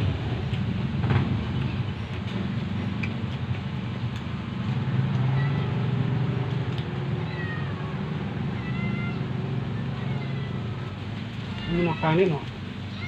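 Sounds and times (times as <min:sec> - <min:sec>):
cat meowing: 0:05.3 - 0:05.9, 0:07.2 - 0:13.0.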